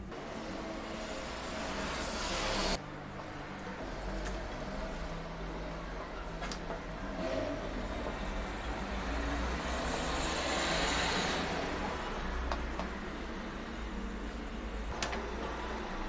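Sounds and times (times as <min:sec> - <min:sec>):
vehicle passing hiss: 0:00.1 - 0:02.8, 0:07.2 - 0:12.5.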